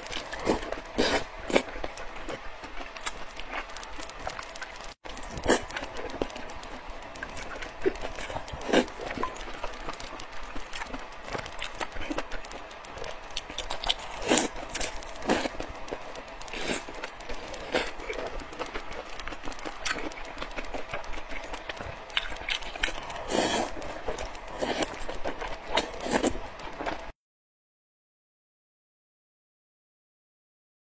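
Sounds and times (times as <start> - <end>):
noodles slurped and chewed: 0.0 - 27.1.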